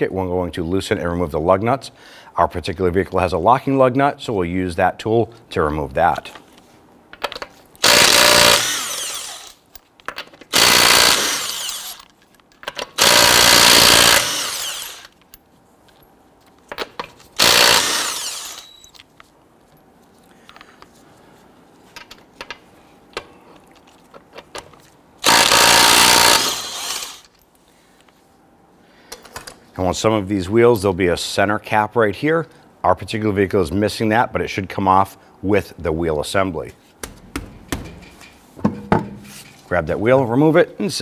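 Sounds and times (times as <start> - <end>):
impact wrench bursts: 7.8 - 9.7, 10.5 - 12.1, 12.8 - 15.2, 17.4 - 19.0, 25.2 - 27.3.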